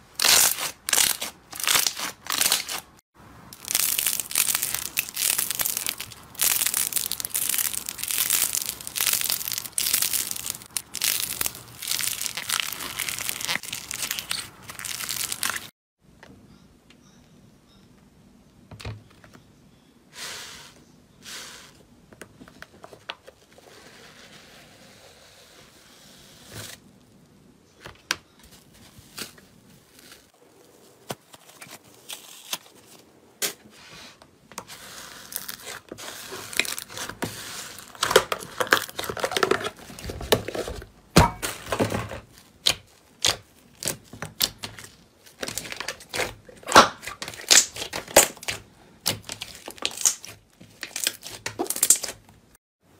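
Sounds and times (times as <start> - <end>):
slime tearing and crackling: 0.2 - 3.0, 3.6 - 15.7, 35.2 - 39.7, 42.6 - 52.2.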